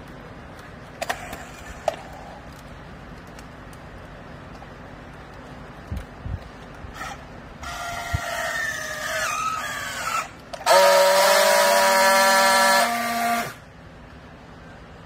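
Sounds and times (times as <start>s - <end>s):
strapping tool motor whining: 6.9s - 13.6s.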